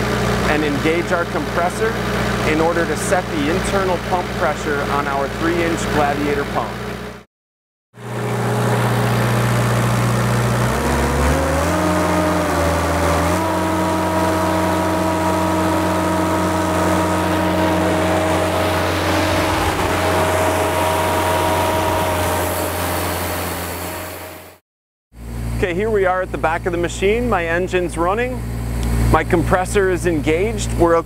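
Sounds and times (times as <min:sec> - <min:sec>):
diesel engine revving: 0:00.0 - 0:07.3, 0:08.0 - 0:24.6.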